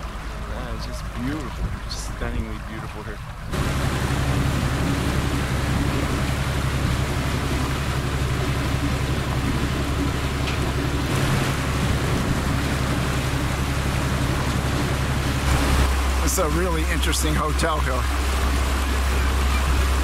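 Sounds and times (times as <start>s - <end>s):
boat engine pulsing hum: 0.0s - 20.0s
rushing water: 0.0s - 20.0s
wind noise: 1.5s - 16.2s.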